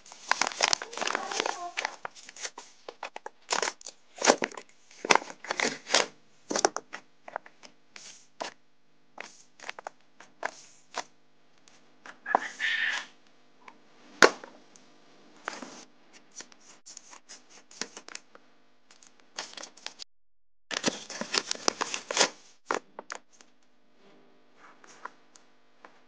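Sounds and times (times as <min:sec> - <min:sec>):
paper crinkling and rustling: 0:00.0 - 0:08.6, 0:09.2 - 0:11.1, 0:15.4 - 0:18.2, 0:18.9 - 0:20.0, 0:20.7 - 0:23.5.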